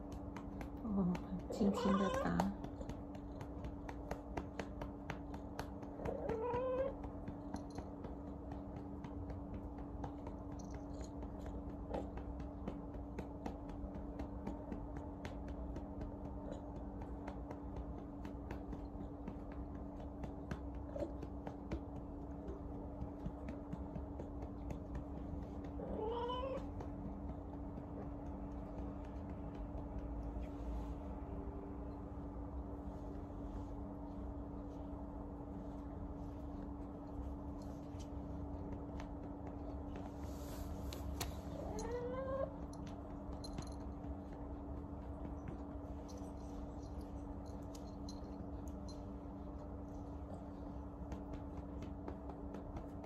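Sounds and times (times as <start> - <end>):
low hum: 0.0 - 53.0
cat meowing: 1.6 - 2.5, 6.0 - 7.0, 25.8 - 26.7.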